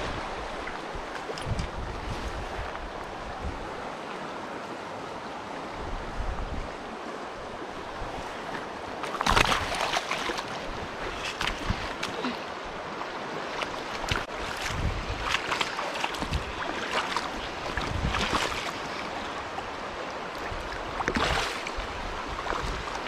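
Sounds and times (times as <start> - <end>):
river water running: 0.0 - 23.0
water splashing: 8.3 - 19.6, 20.3 - 23.0.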